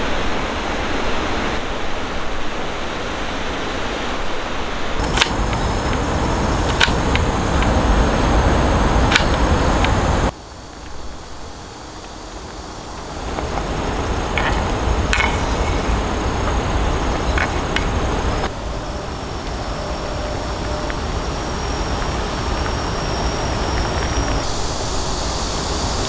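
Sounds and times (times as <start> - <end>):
faint clicks: 5.0 - 11.0, 12.0 - 24.6
high insect buzz: 5.0 - 26.0.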